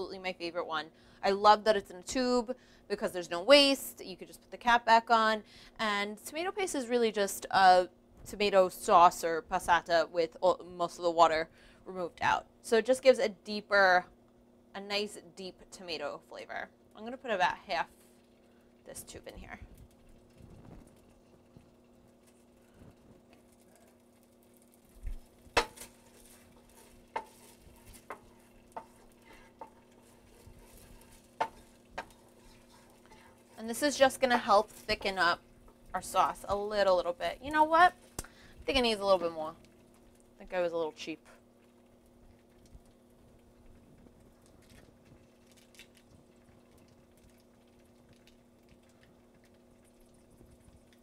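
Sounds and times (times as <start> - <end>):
faint sizzle: 0.0 - 51.0
wooden spoon knocking on pan: 25.5 - 32.6.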